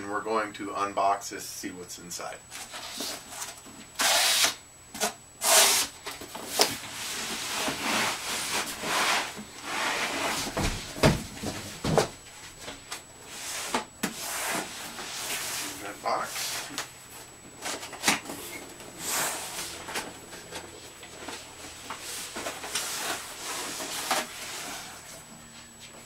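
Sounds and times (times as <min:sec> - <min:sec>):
cardboard rubbing and scraping: 0:05.4 - 0:11.8, 0:13.3 - 0:16.8, 0:17.6 - 0:25.2.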